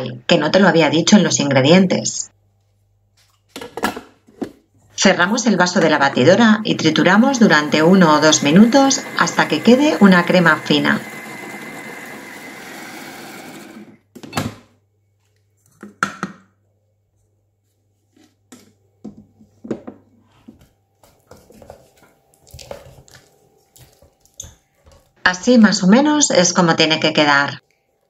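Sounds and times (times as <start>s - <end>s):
food processor motor whirring: 5.3s - 14.0s.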